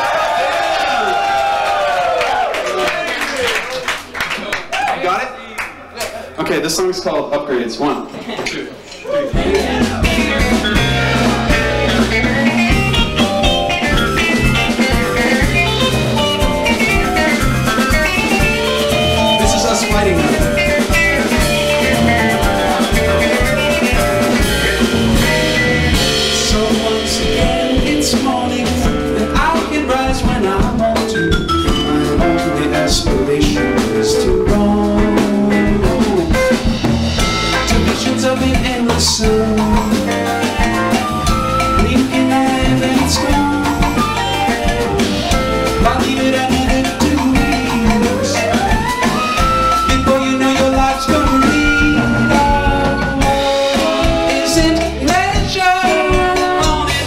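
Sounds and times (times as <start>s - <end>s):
live band playing: 9.0s - 57.0s
drum kit beat: 9.3s - 57.0s.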